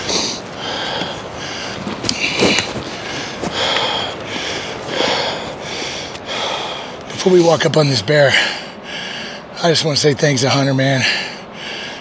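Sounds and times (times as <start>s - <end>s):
man breathing hard: 0.0s - 7.1s, 8.3s - 9.5s, 11.0s - 12.0s.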